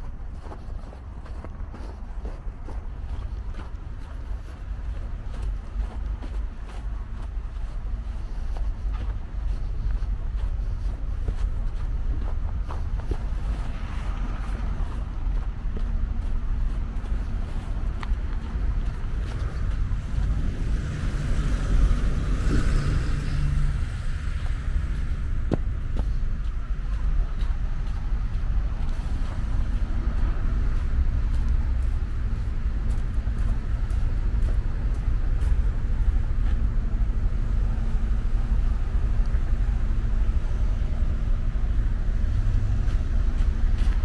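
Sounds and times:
low traffic rumble: 0.0s - 44.0s
car passing on slushy road: 12.7s - 27.6s.

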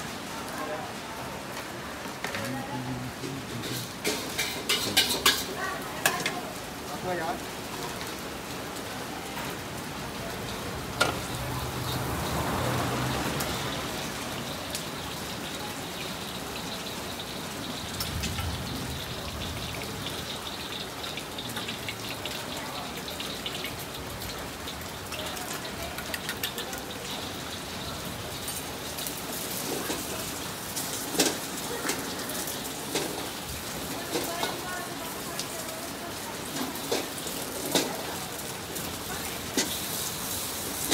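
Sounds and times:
frying hiss in a wok: 0.0s - 40.9s
rain: 0.0s - 40.9s
ladle clinking against wok: 3.6s - 6.3s.

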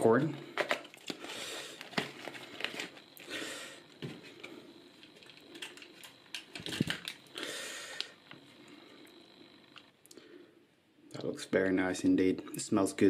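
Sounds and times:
paper packaging rustles: 0.6s - 3.1s, 5.0s - 7.3s.

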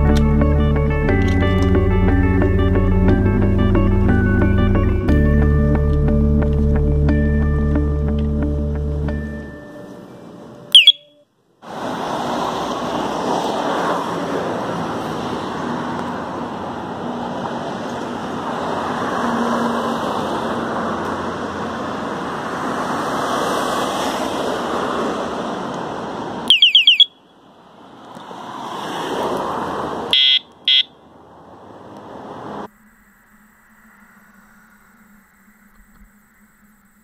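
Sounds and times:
high beeps: 10.7s - 11.2s, 26.5s - 27.3s, 30.2s - 31.0s
electronic bicycle horn siren: 10.7s - 11.3s, 26.5s - 27.3s, 30.1s - 31.0s.

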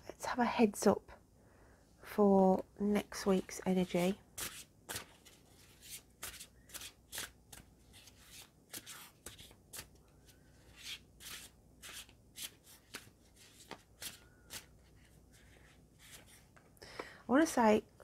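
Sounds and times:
cards being shuffled: 3.8s - 16.6s.

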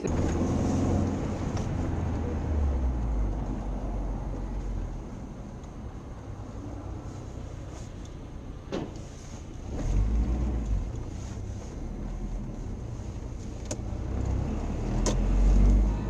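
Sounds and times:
engine and road rumble in car: 0.0s - 16.0s.

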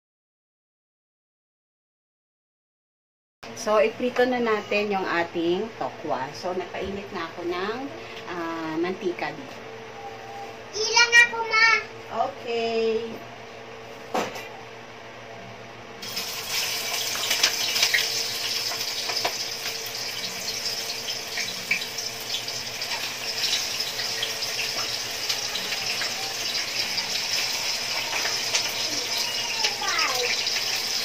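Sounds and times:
tofu sizzling in hot oil: 16.0s - 31.0s.

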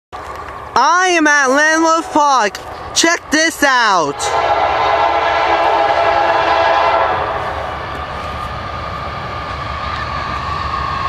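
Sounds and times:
train rumbling: 0.2s - 11.0s
locomotive air horn blast: 4.1s - 7.7s.

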